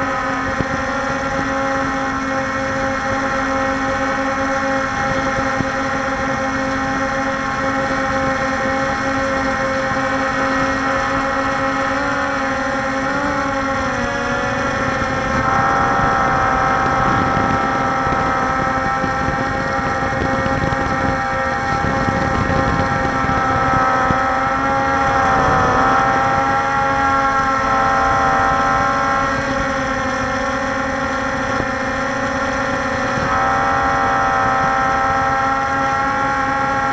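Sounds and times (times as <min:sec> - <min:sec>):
drone motors droning: 0:00.0 - 0:36.9.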